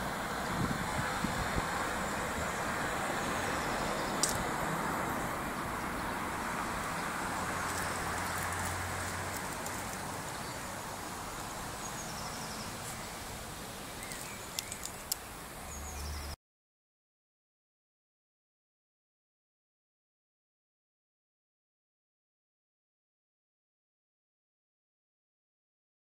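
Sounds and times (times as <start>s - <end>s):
distant road traffic hum: 0.0s - 16.4s.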